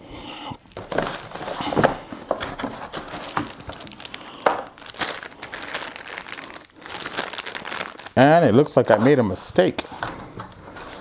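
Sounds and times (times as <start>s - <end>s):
plastic bag crinkling: 0.6s - 8.4s
cardboard packaging rustling: 0.7s - 9.2s.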